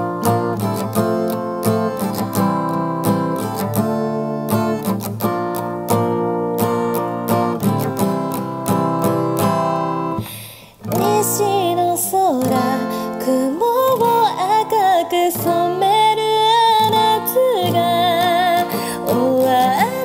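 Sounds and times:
acoustic guitar strumming: 0:00.0 - 0:20.0
person singing: 0:10.8 - 0:20.0.

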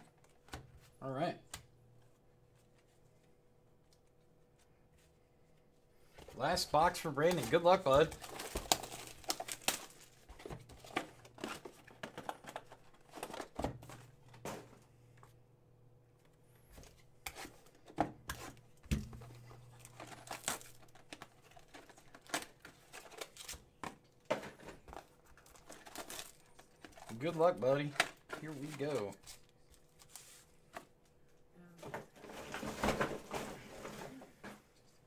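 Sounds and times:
wrapper crinkling and tearing: 0:06.8 - 0:14.0, 0:19.6 - 0:23.6, 0:24.9 - 0:27.2.

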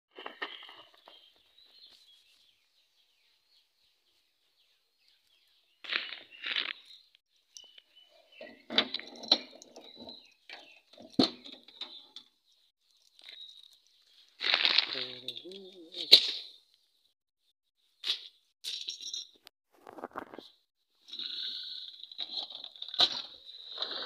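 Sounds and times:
small birds chirping: 0:00.2 - 0:18.5.

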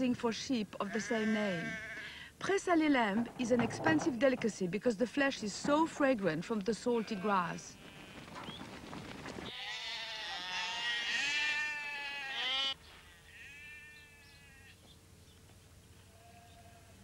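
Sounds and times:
sheep bleating: 0:00.8 - 0:02.2, 0:06.9 - 0:08.5, 0:09.5 - 0:14.8, 0:16.1 - 0:17.0.

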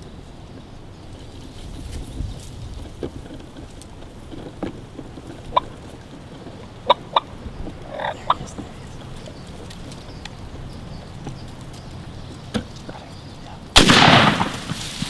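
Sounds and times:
turkey clucks: 0:05.2 - 0:13.7
rough turkey call: 0:05.5 - 0:05.9, 0:06.8 - 0:09.6.

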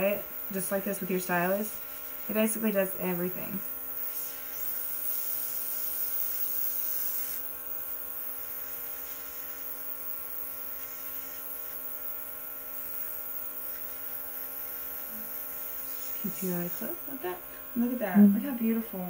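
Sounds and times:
airbrush compressor humming: 0:00.0 - 0:19.0
air hissing from airbrush: 0:04.0 - 0:17.8.

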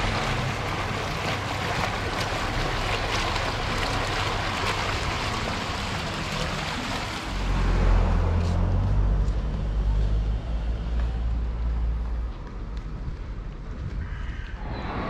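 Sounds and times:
fountain water splashing: 0:00.0 - 0:10.2
low rumble: 0:13.8 - 0:15.0.

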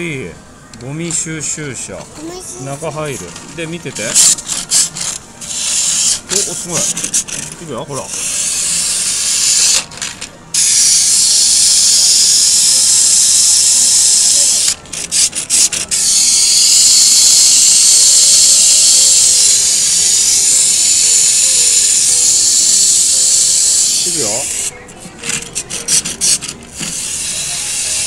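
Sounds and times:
faint music: 0:00.0 - 0:28.0
loud high-pitched hiss: 0:10.6 - 0:14.8, 0:15.9 - 0:24.7, 0:26.9 - 0:28.0.

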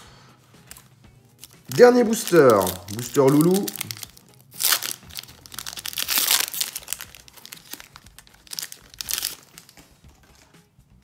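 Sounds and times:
foil wrapper tearing and crinkling: 0:01.4 - 0:09.8.

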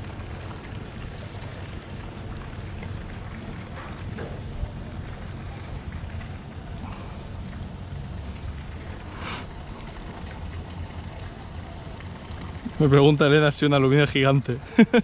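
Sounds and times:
harbour low rumble: 0:00.0 - 0:15.0
short hiss: 0:09.1 - 0:09.6.

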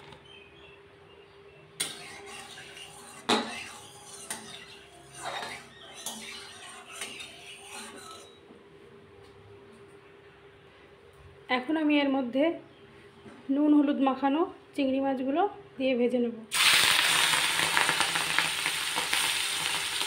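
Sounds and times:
spatula scraping pan: 0:01.8 - 0:08.4.

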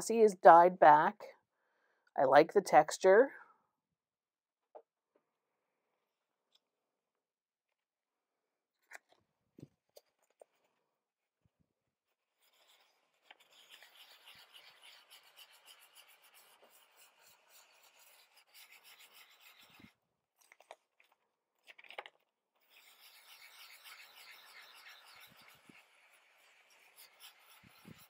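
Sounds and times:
sandpaper scrubbing paper: 0:12.4 - 0:19.9, 0:22.6 - 0:28.0.

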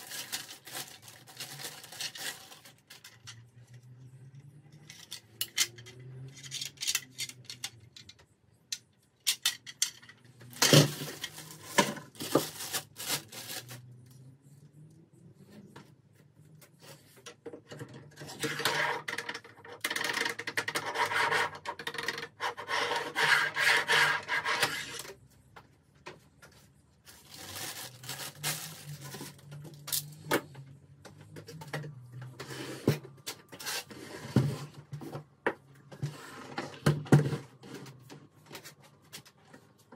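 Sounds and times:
plastic wrap crinkling: 0:00.0 - 0:03.0, 0:10.5 - 0:14.0, 0:27.0 - 0:29.9.

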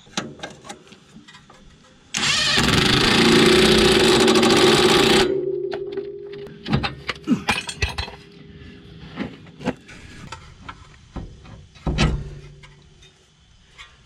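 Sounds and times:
impact wrench hammering: 0:02.2 - 0:07.8.

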